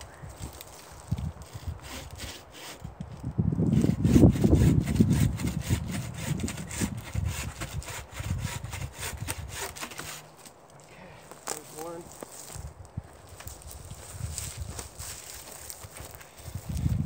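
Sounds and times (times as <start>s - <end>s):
hand saw cutting wood: 1.5s - 2.9s, 3.7s - 10.5s.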